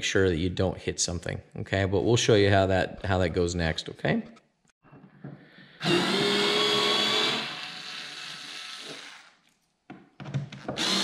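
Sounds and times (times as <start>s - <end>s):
cordless screwdriver motor whining: 5.8s - 9.3s, 10.8s - 11.0s.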